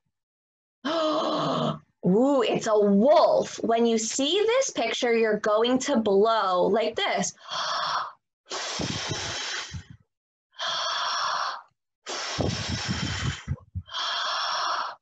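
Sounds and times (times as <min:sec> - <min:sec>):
woman blowing hard: 0:08.5 - 0:10.0, 0:12.1 - 0:14.1.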